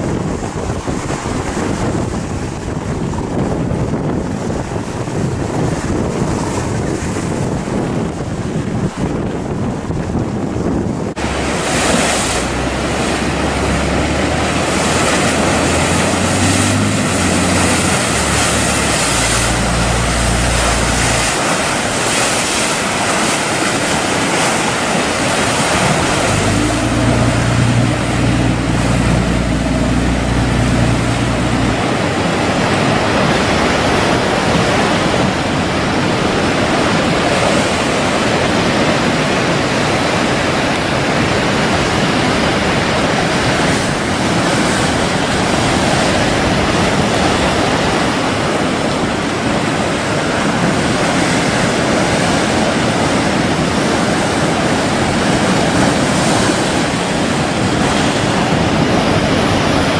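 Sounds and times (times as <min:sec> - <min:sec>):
surf breaking and churning: 0:00.0 - 0:59.9
wind noise on microphone: 0:00.0 - 0:59.9
deep low rumble: 0:11.2 - 0:23.6, 0:24.8 - 0:33.8.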